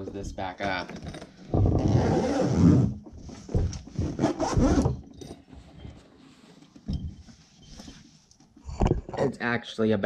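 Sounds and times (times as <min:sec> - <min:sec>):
zipper rasping shut: 0:01.6 - 0:03.0, 0:03.7 - 0:05.0.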